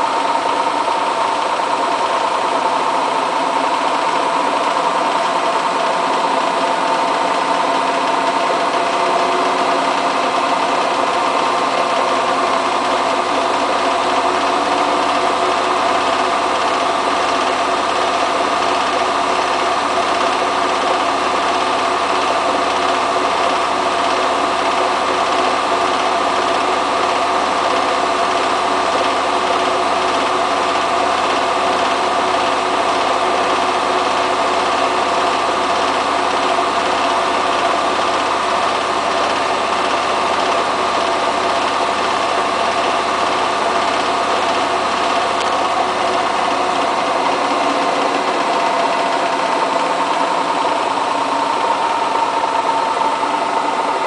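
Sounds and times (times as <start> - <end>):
washing machine spinning with whine: 0.0 - 54.0.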